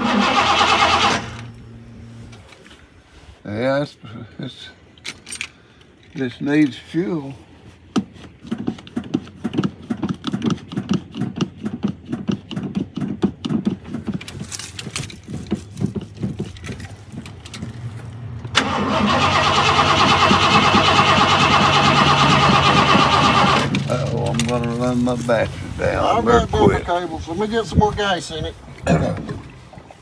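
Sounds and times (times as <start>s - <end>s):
truck engine cranking: 0.0s - 2.4s, 12.5s - 25.7s.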